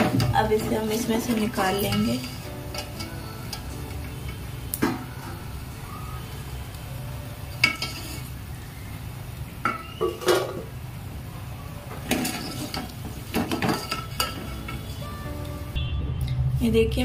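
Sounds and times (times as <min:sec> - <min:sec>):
metal spatula scraping metal pot: 0:01.2 - 0:03.6, 0:07.6 - 0:08.4, 0:12.1 - 0:15.0.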